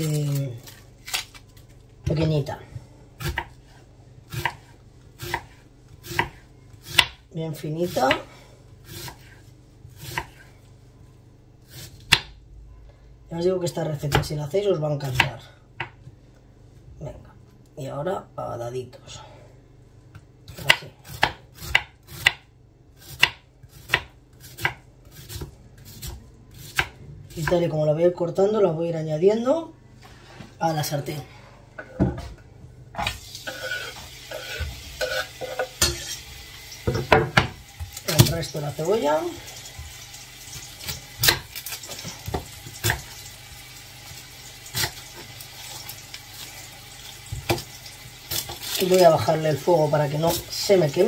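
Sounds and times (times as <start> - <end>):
knife chopping onion: 3.2 - 3.7, 4.3 - 10.5, 11.7 - 12.4, 20.5 - 27.7, 40.5 - 43.3, 44.7 - 45.9
onion sizzling in oil: 33.0 - 51.0.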